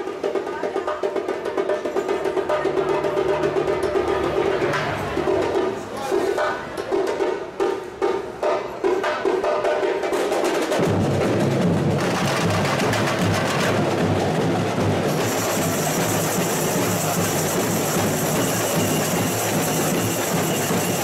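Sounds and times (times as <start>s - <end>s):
sparse drum pattern: 0.0s - 21.0s
tamborins and shakers: 11.9s - 21.0s.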